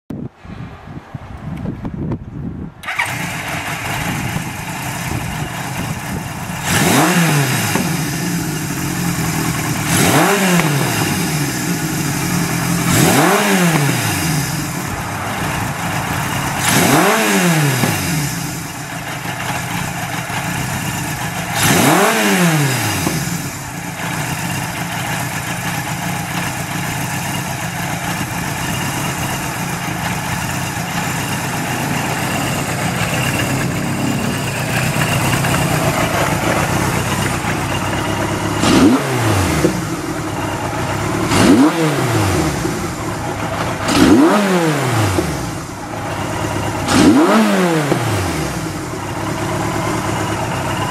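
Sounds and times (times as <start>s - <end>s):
engine revving: 2.8s - 50.9s
motorcycle engine idling: 2.8s - 50.9s.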